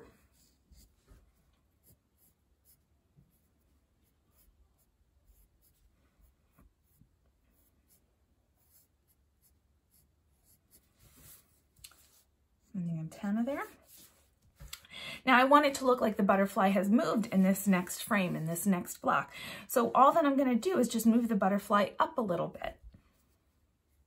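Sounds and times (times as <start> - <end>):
pencil scratching on paper: 0.3 - 12.3, 13.6 - 14.4.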